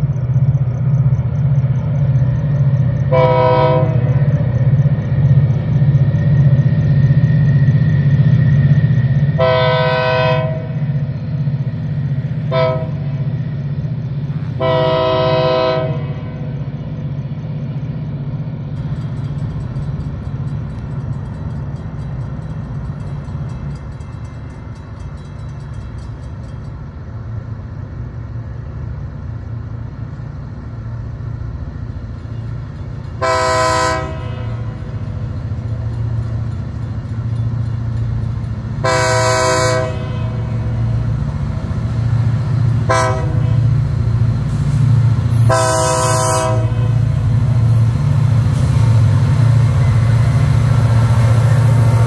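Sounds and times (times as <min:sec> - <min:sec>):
locomotive air horn: 0:03.1 - 0:04.2, 0:09.4 - 0:10.8, 0:12.4 - 0:13.2, 0:14.6 - 0:16.5, 0:33.2 - 0:34.8, 0:38.8 - 0:40.8, 0:42.8 - 0:43.7, 0:45.3 - 0:47.1.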